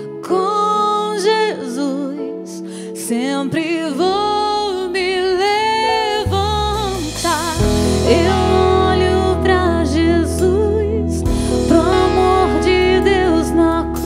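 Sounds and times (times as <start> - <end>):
woman singing: 0.0 - 14.0
instrumental backing: 2.2 - 14.0
deep bass notes: 6.2 - 14.0.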